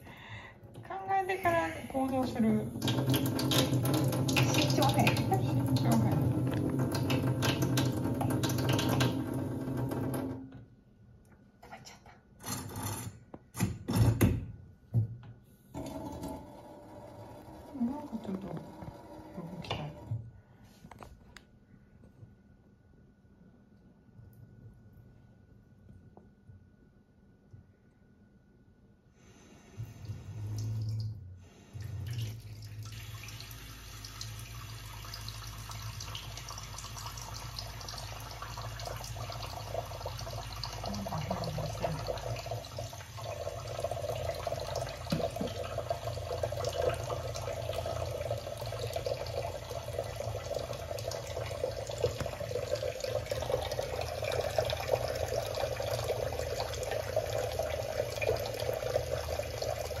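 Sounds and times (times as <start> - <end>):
tap water splashing into bowl: 2.8 - 9.3, 44.2 - 49.8, 51.2 - 55.1.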